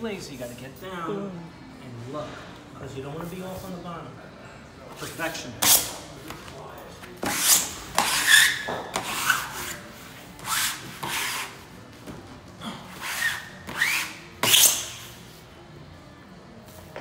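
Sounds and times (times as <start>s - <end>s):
smoother rubbing wallpaper on wall: 7.2s - 11.6s, 12.9s - 15.4s.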